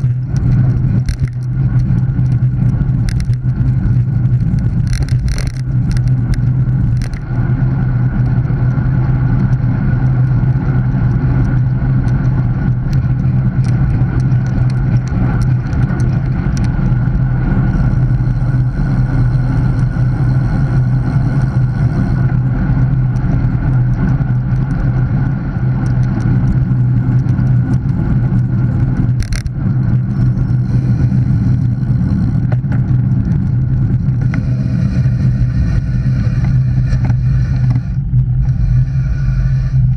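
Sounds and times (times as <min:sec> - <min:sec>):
bike tyres rolling on asphalt: 0:00.0 - 0:39.9
low continuous hum: 0:00.0 - 0:39.9
wind noise: 0:00.0 - 0:39.9.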